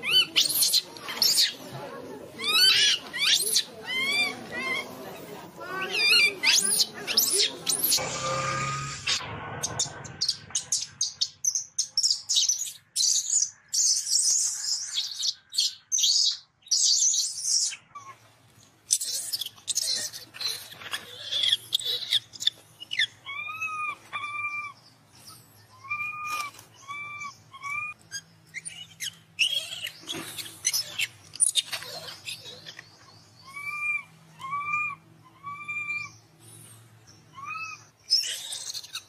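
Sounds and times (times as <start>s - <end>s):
rapid high animal chirps: 25.7s - 32.8s.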